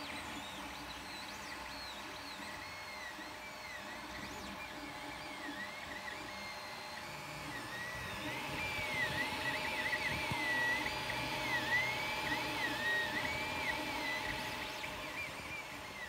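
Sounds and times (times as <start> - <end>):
stepper motors whining: 0.0 - 16.0
steady fan hum: 6.5 - 16.0.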